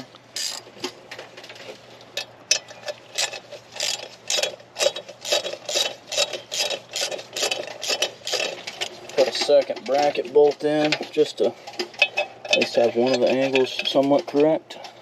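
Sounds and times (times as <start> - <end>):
ratchet wrench clicking: 0.4 - 0.6, 3.1 - 8.6.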